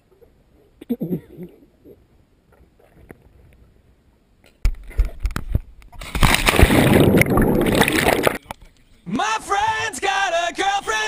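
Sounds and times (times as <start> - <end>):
water sloshing against camera: 4.7 - 8.7.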